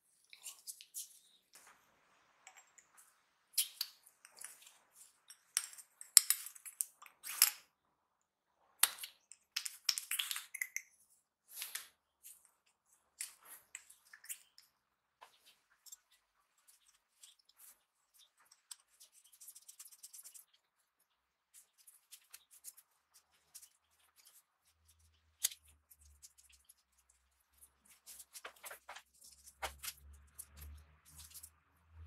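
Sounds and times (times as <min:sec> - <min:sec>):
small metal parts clicking and scraping: 0:28.0 - 0:31.6.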